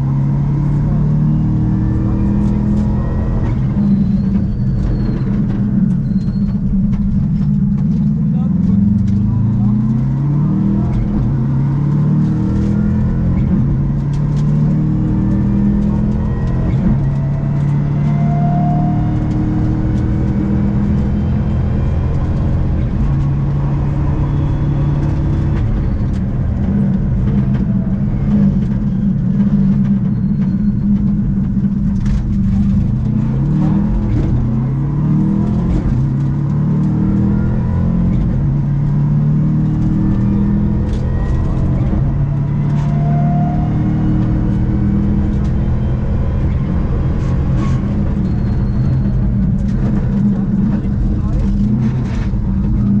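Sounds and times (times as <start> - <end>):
rally car engine revving: 0.0 - 53.0.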